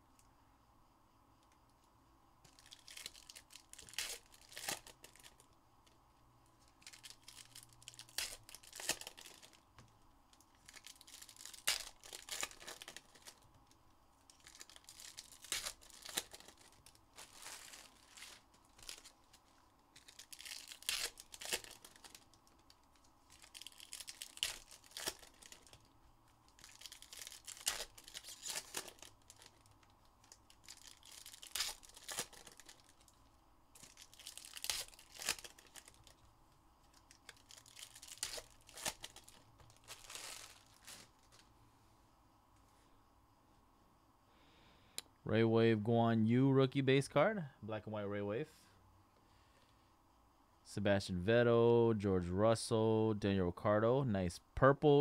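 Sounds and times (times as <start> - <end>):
foil wrappers tearing and crinkling: 2.5 - 5.5, 6.6 - 9.6, 10.5 - 13.4, 14.3 - 25.9, 26.5 - 33.2, 33.8 - 36.2, 36.9 - 41.4.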